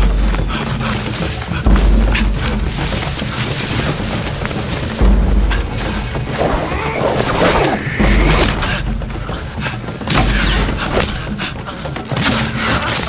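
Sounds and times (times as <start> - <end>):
dramatic orchestral music: 0.0 - 13.0
running through foliage: 0.0 - 13.0.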